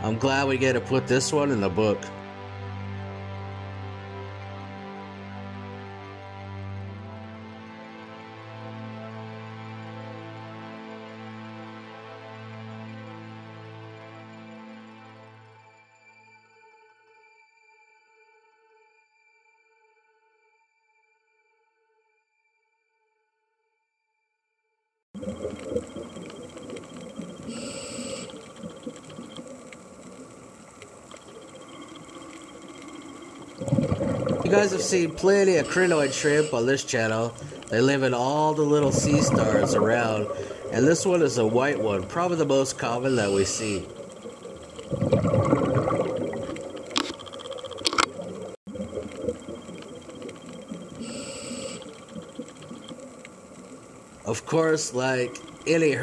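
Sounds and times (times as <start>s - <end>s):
muffled underwater bubbling: 25.2s - 56.0s
scattered clicks: 46.4s - 51.0s
sharp clicks: 46.5s - 48.5s.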